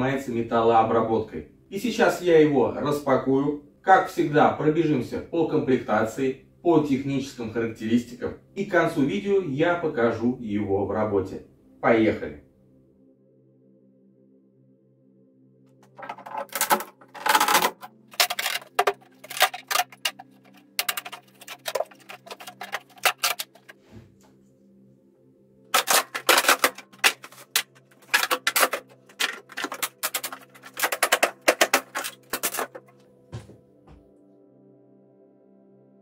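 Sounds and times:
background music: 0.0 - 36.0
wooden crate knocking and clattering: 15.8 - 20.2.

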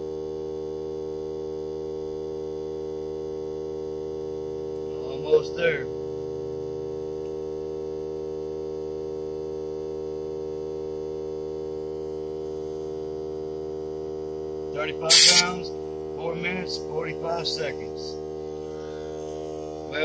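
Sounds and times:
brief rush of noise: 15.1 - 15.5
air compressor humming: 15.1 - 15.6.

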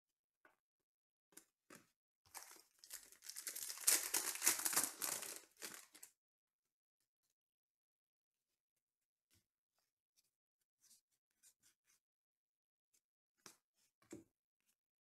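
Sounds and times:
foil wrapper tearing and crinkling: 2.4 - 6.1.

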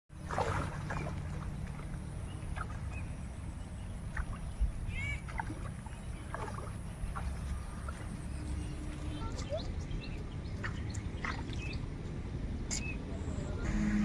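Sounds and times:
feet splashing through water: 0.1 - 13.0
steady low rumble: 0.1 - 14.0.

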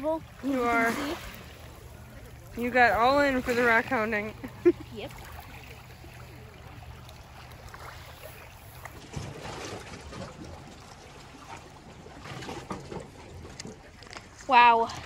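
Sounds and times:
waves lapping over pebbles: 0.0 - 15.0.

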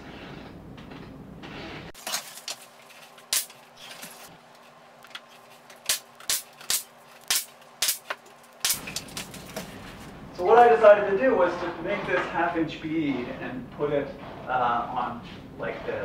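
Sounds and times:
nail gun firing: 5.8 - 8.9.

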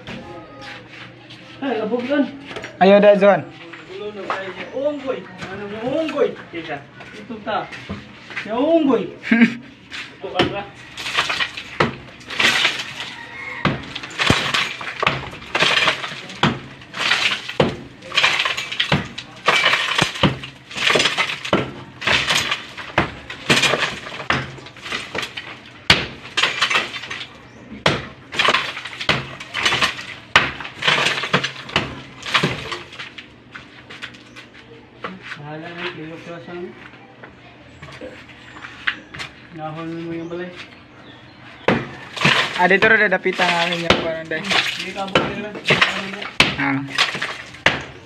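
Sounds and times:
sledgehammer striking concrete block: 10.3 - 33.0, 41.7 - 48.0
rubble clattering and falling: 10.3 - 34.4, 41.7 - 48.0.

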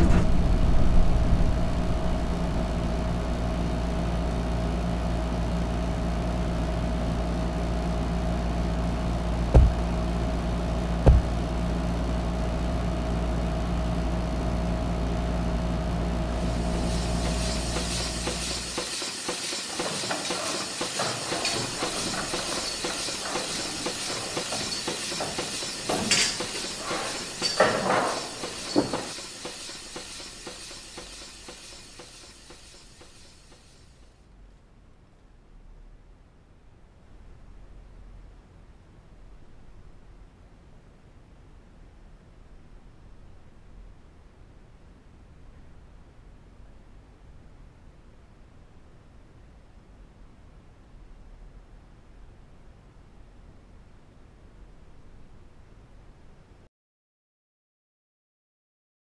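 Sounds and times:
machinery rumble with hum: 0.0 - 56.6
heavy knocks: 9.6 - 9.9, 11.0 - 11.4
steady hiss: 16.2 - 34.1
sharp metal clanks: 17.2 - 33.7.

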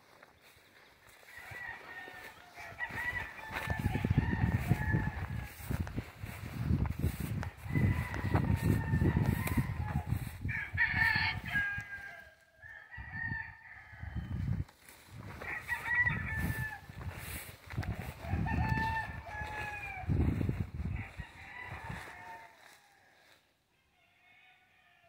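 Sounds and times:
roosters crowing: 0.2 - 25.0.

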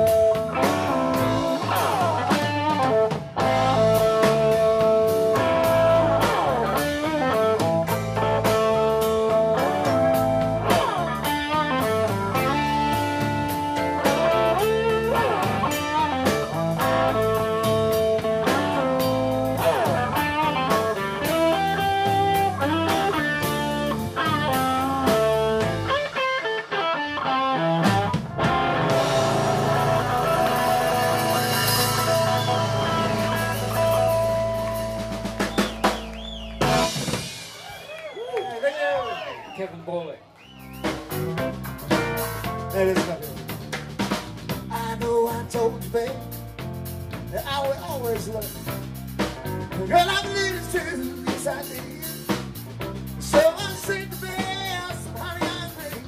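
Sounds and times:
blues band playing: 0.0 - 38.3, 40.3 - 56.0
amplified harmonica: 28.4 - 36.9.

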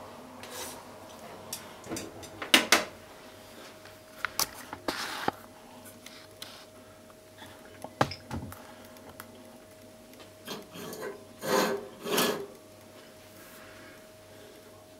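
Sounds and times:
bowl scraping on stove grate: 0.4 - 0.9, 10.4 - 12.6.

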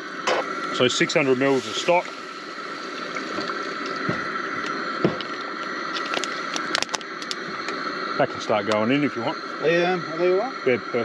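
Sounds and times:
gas stove hiss: 0.0 - 11.0
liquid splashing and bubbling: 2.7 - 5.3.

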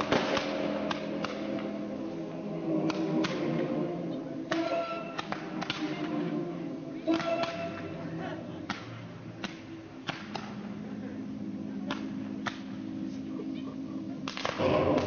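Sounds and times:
firework shells bursting: 0.0 - 1.9
music playing: 0.0 - 15.0.

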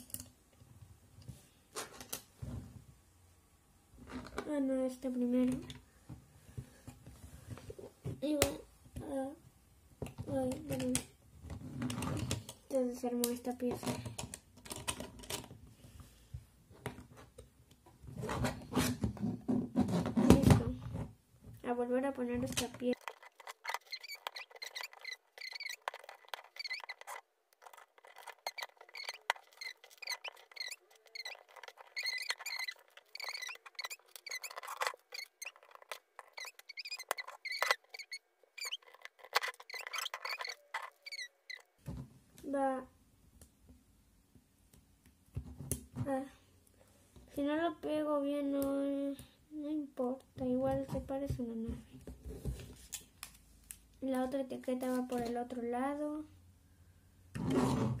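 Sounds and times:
plastic bricks clicking: 22.4 - 41.6
high squeaky chirps: 22.8 - 41.8.

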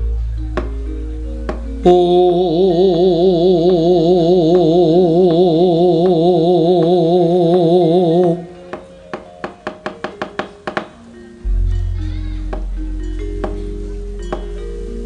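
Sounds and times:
man singing held note: 1.8 - 8.4.

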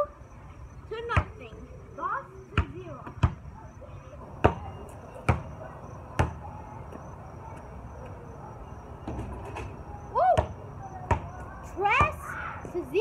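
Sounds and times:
basketball bouncing: 2.5 - 3.5, 4.4 - 7.1, 10.4 - 12.2.

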